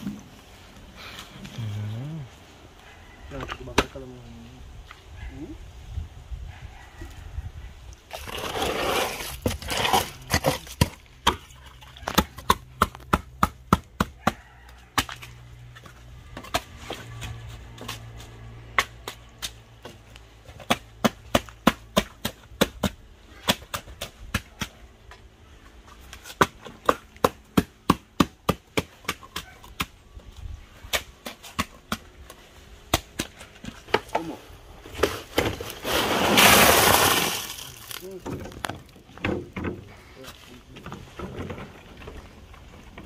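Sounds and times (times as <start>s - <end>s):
board knocking wet concrete: 8.3s - 14.4s.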